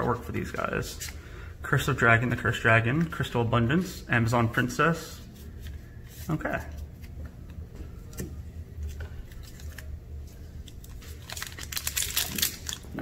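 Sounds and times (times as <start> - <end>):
trading cards clicking and rustling: 6.5 - 13.0
foil wrapper crinkling: 9.3 - 9.9, 10.6 - 13.0.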